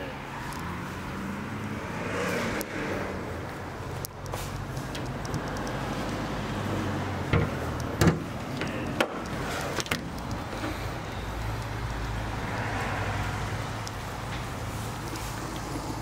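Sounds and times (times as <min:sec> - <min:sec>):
sharp knocks or clunks: 0:07.3 - 0:09.2.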